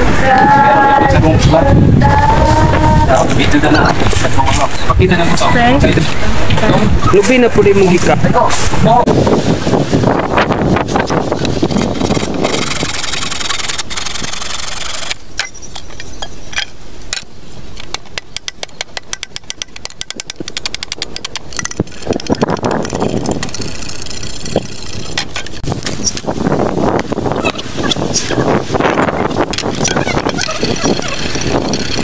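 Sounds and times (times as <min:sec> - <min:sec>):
saw cutting bamboo: 0:11.8 - 0:15.2.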